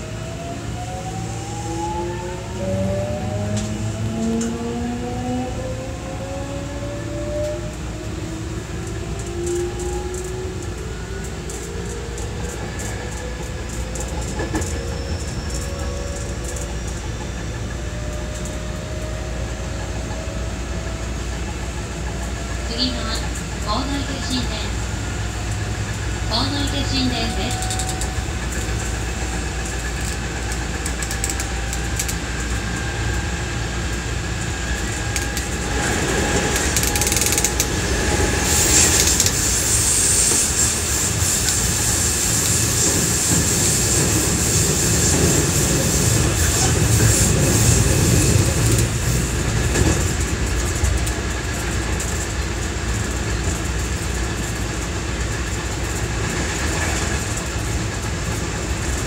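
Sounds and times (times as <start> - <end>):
train motor whine: 0.0 - 59.0
train wheels rumbling on rails: 0.0 - 59.0.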